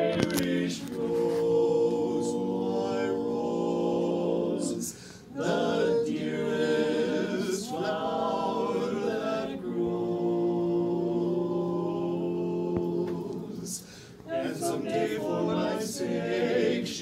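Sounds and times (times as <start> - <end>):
men singing in close harmony: 0.0 - 17.0.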